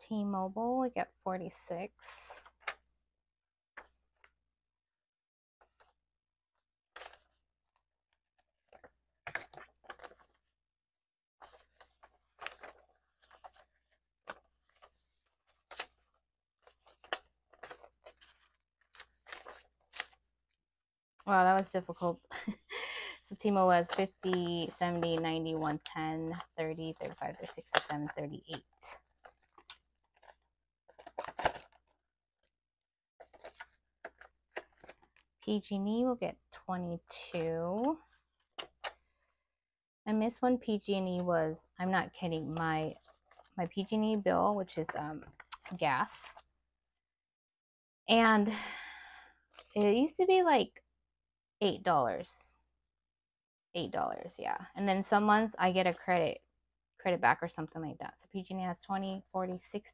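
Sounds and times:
banknotes rustling and flicking: 11.4 - 20.3, 21.3 - 32.0, 33.2 - 35.3.

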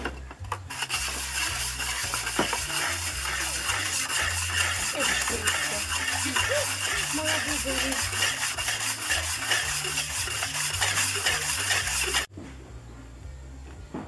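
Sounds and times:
hand scraping and sloshing clay: 0.6 - 12.3.

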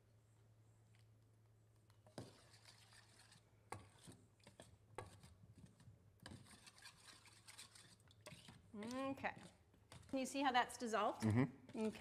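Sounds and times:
utensil scraping and stirring cookware: 1.9 - 10.4, 11.6 - 12.0.

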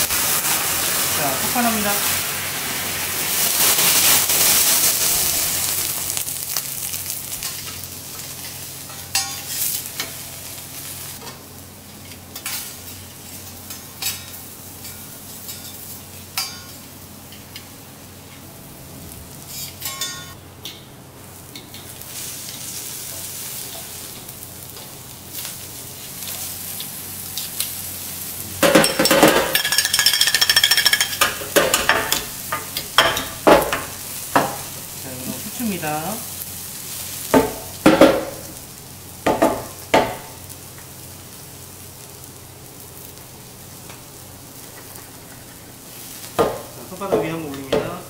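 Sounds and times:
vegetables sizzling on a griddle: 0.0 - 48.0
shakers clacking and knocking: 28.7 - 31.2.

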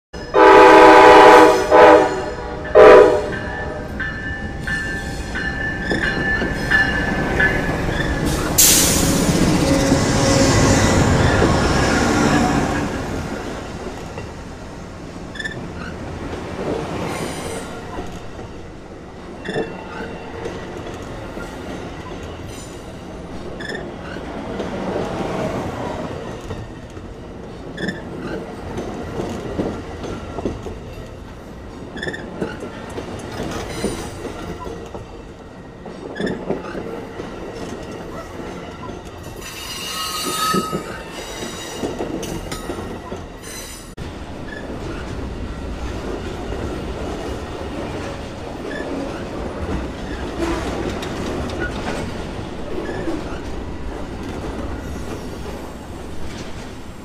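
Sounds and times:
locomotive horn blasts: 0.3 - 3.9
wheel squeal: 15.3 - 15.9, 39.4 - 42.0.

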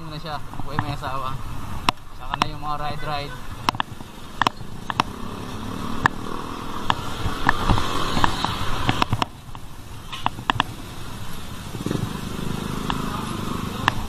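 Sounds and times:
car and motorcycle engines: 0.0 - 14.0
sharp clicks and knocks: 1.8 - 2.6, 3.6 - 5.2, 5.9 - 10.8, 13.8 - 14.0.

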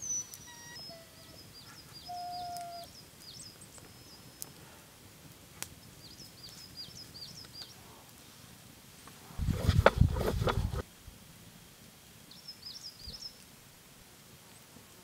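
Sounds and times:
small birds chirping: 0.0 - 4.6, 5.6 - 7.8, 12.3 - 13.4.

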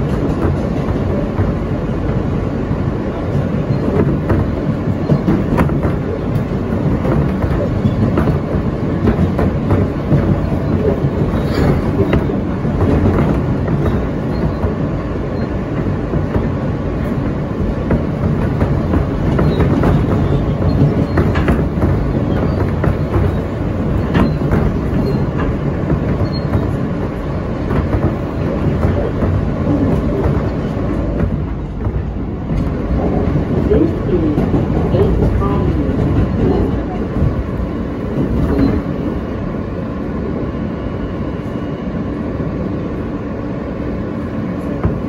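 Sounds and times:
low rumble of wheels on rail: 0.0 - 45.0
wheels clicking over rail joints: 3.0 - 39.2.

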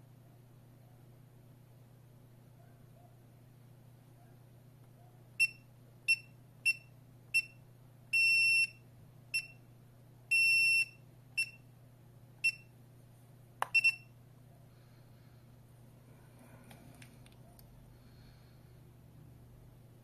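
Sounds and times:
keypad beeps: 13.6 - 14.1.

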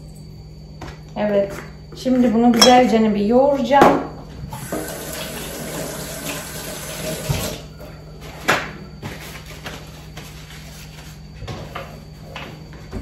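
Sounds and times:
tap running into metal sink: 4.6 - 5.9
paper towel rustling: 9.1 - 11.8.

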